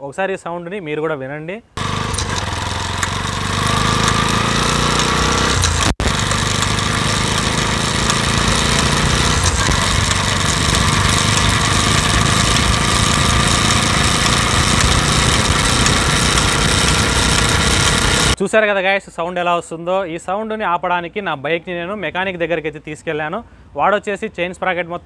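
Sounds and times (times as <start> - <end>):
motorcycle engine revving: 1.8 - 18.4
road noise: 1.8 - 18.4.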